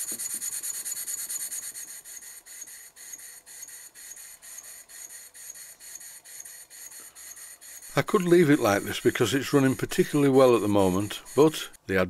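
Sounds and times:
model steam engine exhaust puffs: 0.0s - 11.8s.

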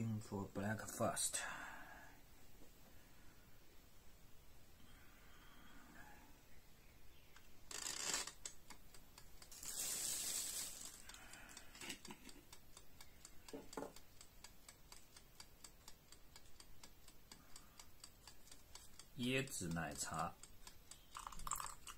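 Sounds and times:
light ticking: 8.3s - 9.6s, 11.0s - 21.9s
plastic bag rustling: 9.5s - 11.1s.

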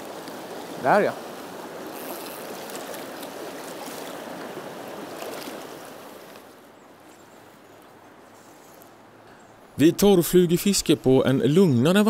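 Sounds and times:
rushing river water: 0.0s - 12.0s.

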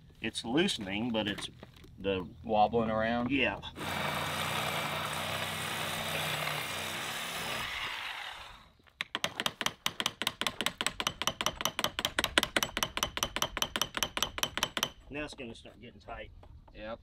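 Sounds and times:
corded power tool running: 3.8s - 8.7s.

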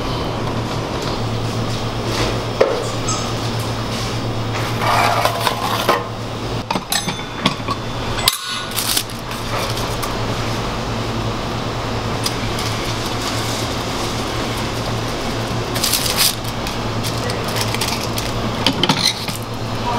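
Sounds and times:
steady fan hum: 0.0s - 19.9s
metallic clinks of kitchen equipment: 6.8s - 8.7s.

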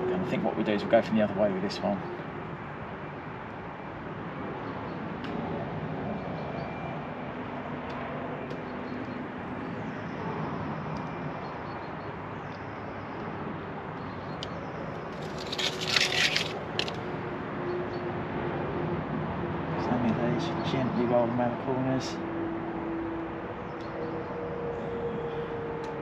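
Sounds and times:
tape peeling off with crackling rustle: 15.0s - 17.0s.

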